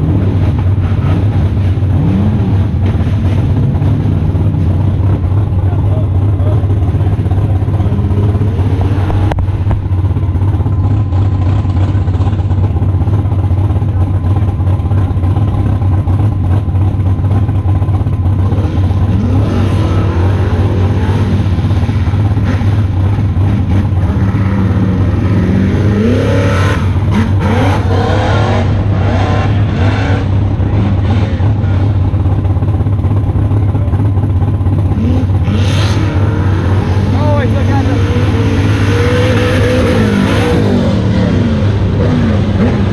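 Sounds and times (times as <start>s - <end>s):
race vehicle engines revving: 0.0s - 42.9s
loud steady low hum: 4.2s - 15.5s.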